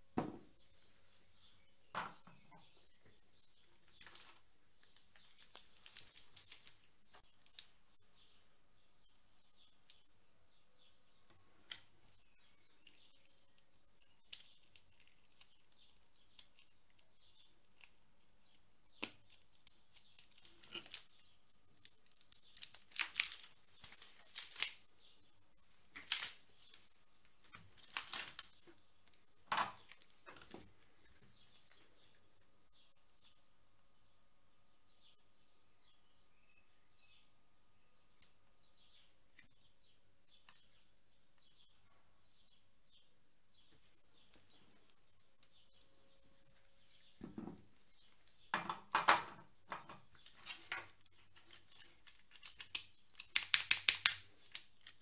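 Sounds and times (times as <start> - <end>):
keyboard clicks and crackles: 50.1 - 55.0.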